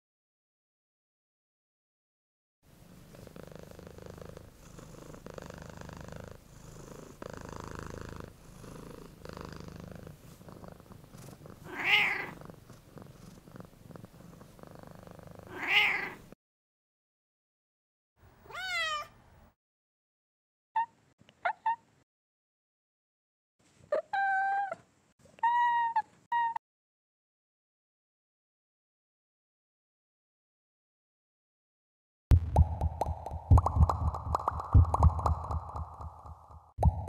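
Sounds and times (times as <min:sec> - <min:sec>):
cat purring: 0:02.8 - 0:16.4
cat meowing: 0:11.7 - 0:12.4, 0:15.5 - 0:16.2, 0:18.4 - 0:19.1, 0:23.9 - 0:24.8, 0:25.4 - 0:26.6.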